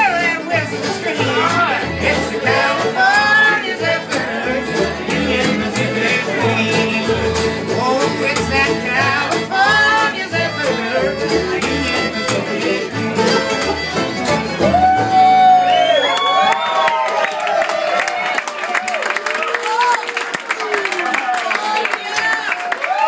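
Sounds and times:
strummed acoustic guitars: 0.0 - 15.7
fiddles playing melody: 0.0 - 15.8.

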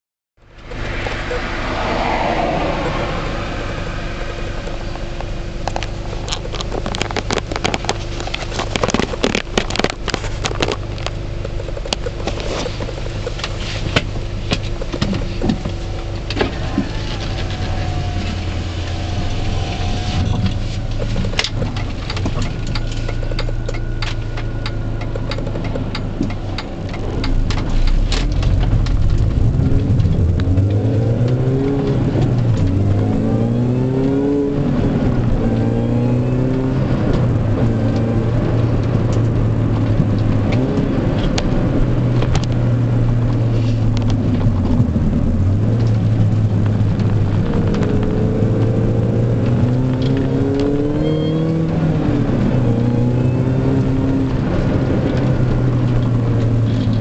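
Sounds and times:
car engine drone: 0.4 - 57.0
road noise: 0.4 - 57.0
sharp clicks and rattles: 4.5 - 18.7, 19.6 - 33.4, 36.5 - 52.9.

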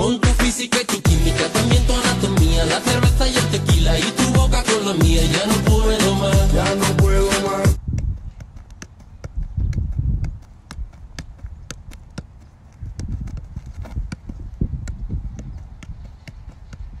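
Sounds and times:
ball touches on foot: 7.8 - 17.0.

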